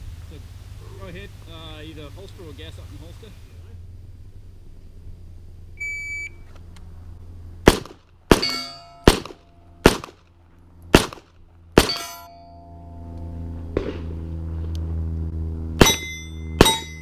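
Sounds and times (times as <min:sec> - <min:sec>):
shot timer beep: 0:05.8 - 0:06.4
pistol shots: 0:07.6 - 0:10.3, 0:10.9 - 0:12.3
steel targets ringing: 0:08.3 - 0:10.0, 0:11.8 - 0:13.2, 0:15.8 - 0:17.0.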